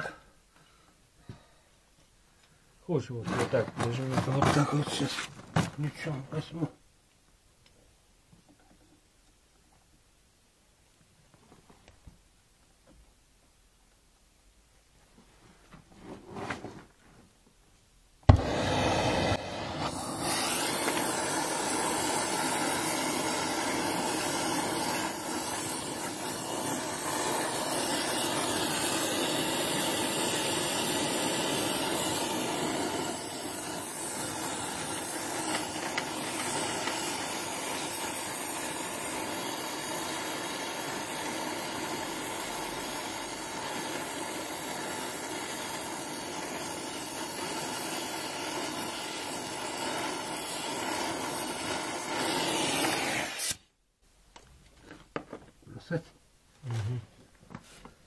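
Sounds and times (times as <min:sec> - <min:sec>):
gas torch lighting pop: 0:18.2 - 0:53.7
torch flame hissing: 0:18.3 - 0:53.7.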